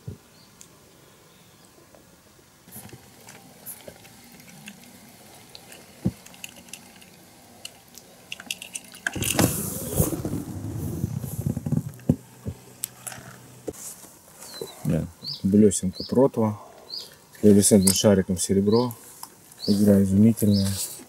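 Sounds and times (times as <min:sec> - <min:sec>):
fishing tackle clicks and clinks: 0:05.6 - 0:09.4
loud rustling and rattling: 0:08.3 - 0:12.2.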